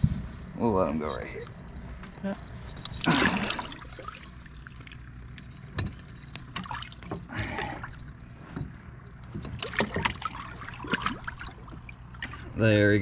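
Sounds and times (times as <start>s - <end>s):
water splashing and dripping: 3.0s - 8.0s, 9.2s - 12.6s.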